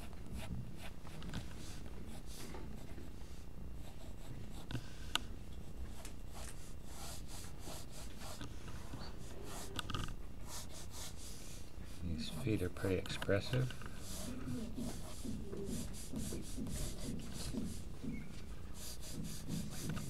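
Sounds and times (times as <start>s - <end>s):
pencil scratching on paper: 3.8s - 4.9s, 5.9s - 18.1s, 18.8s - 20.0s.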